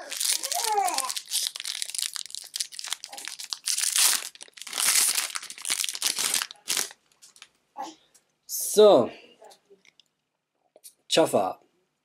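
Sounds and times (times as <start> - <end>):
foil wrapper crinkling and tearing: 0.0 - 7.5.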